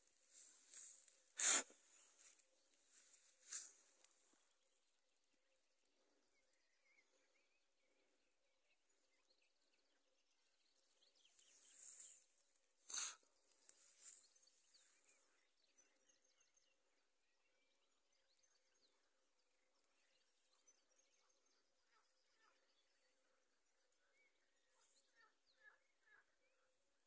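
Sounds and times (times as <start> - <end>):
soft rustle: 0.0 - 4.5
faint bird calls: 20.5 - 26.8.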